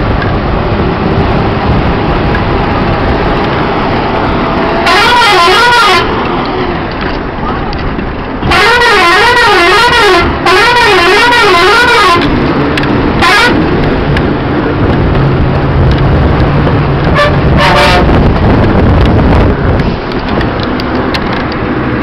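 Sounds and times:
bus engine running: 0.0s - 22.0s
road rumble: 0.0s - 22.0s
bus horn warbling blasts: 4.2s - 6.3s, 8.4s - 12.4s, 13.2s - 13.7s, 17.0s - 18.3s.

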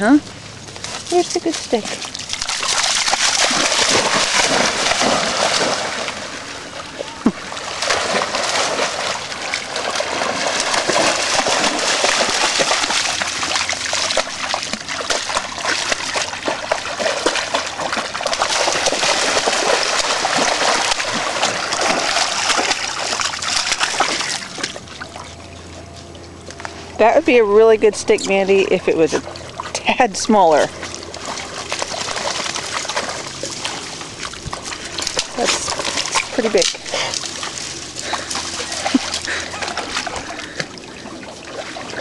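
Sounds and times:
dogs splashing in water: 0.0s - 42.0s.

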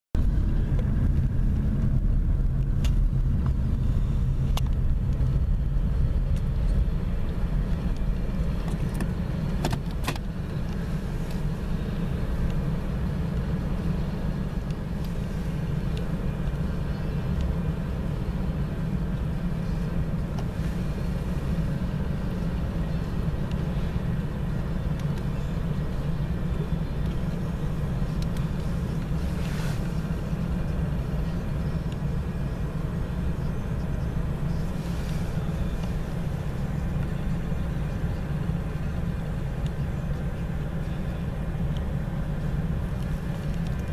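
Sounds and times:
engines idling low rumble: 0.1s - 43.9s.

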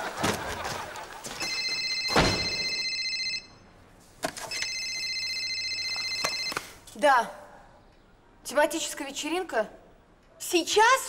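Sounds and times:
mobile phone ringtone: 1.4s - 3.6s, 4.5s - 6.7s
door shutting with a thud: 2.1s - 2.6s.

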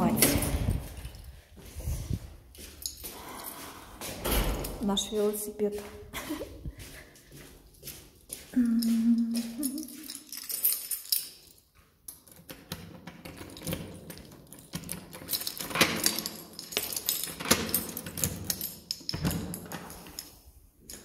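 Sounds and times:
keys jangling: 2.6s - 4.8s, 7.8s - 21.0s
key turning in door lock: 12.1s - 21.0s
metallic clicks and rattles of lock: 12.1s - 21.0s.

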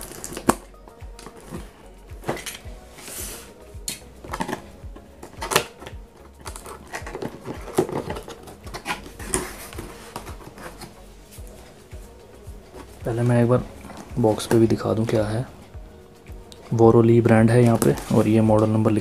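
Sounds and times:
cardboard scraping and rustling: 6.5s - 11.0s, 17.5s - 19.0s.

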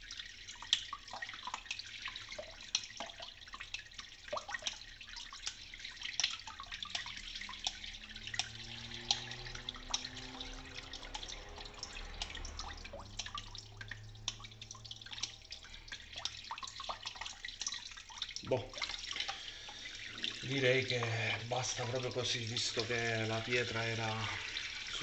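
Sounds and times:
tap water dripping into sink: 0.0s - 25.0s.

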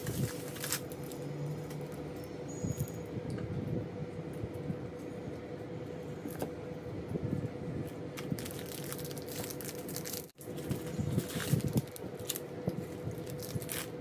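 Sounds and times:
wrapper crinkling and tearing: 0.0s - 1.2s, 8.2s - 14.0s
faint steady hum: 0.0s - 14.0s.

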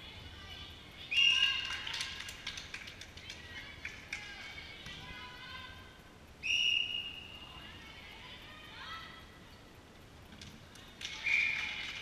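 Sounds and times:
whistle blast: 6.4s - 7.4s.

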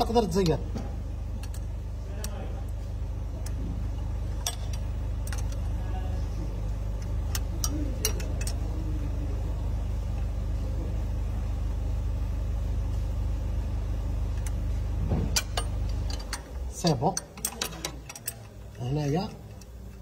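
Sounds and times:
low engine hum: 0.0s - 20.0s
wrench clicking on metal: 15.4s - 20.0s.

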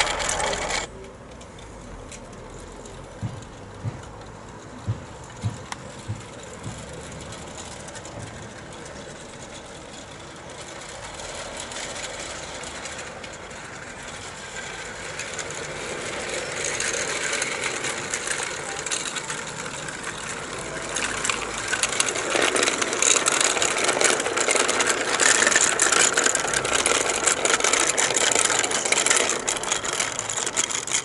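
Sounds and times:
model locomotive motor running: 0.0s - 31.0s
wagons rattling over track: 0.0s - 31.0s.

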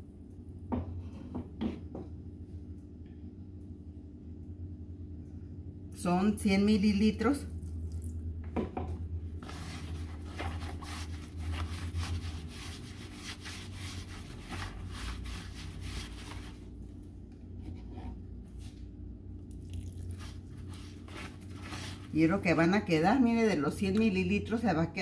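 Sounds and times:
hands kneading soft dough: 9.2s - 24.2s.

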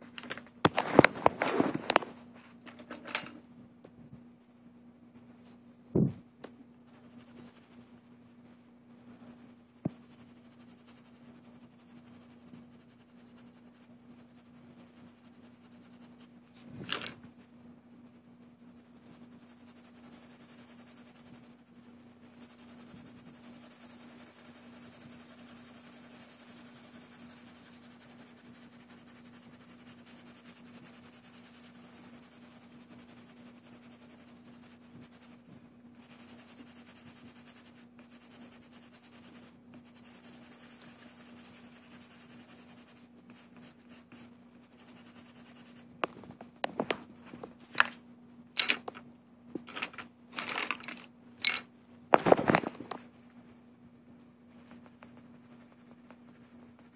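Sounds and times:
low steady hum: 0.0s - 56.9s
marker rubbing on paper: 6.9s - 7.9s, 9.3s - 16.7s, 18.0s - 45.9s, 54.5s - 56.9s.

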